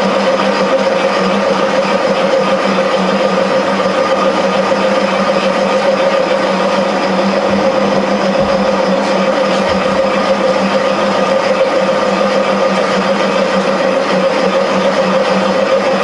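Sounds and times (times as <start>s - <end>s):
machine tool humming: 0.0s - 16.0s.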